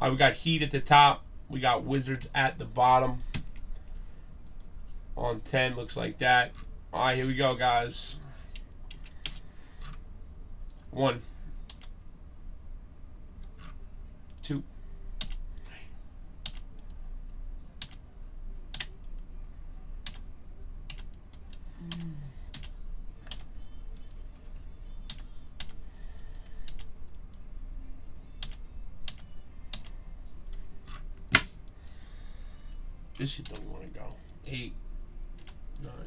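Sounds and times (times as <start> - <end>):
computer mouse and key clicks: 4.4 - 4.7, 8.5 - 10.0, 11.7 - 12.0, 15.2 - 15.7, 16.4 - 17.0, 20.9 - 24.2, 25.1 - 27.4, 28.4 - 32.0, 33.2 - 33.7.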